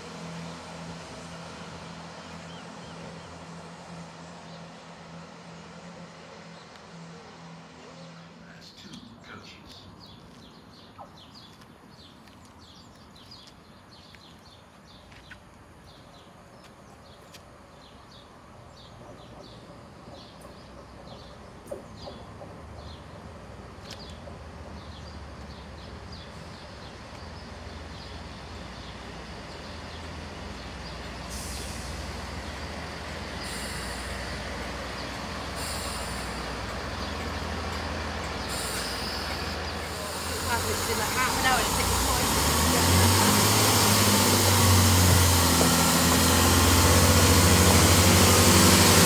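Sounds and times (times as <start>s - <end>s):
train engine rumble: 0.0s - 49.0s
birds chirping: 7.7s - 49.0s
air brakes hissing: 31.2s - 32.4s, 33.3s - 37.2s, 38.4s - 49.0s.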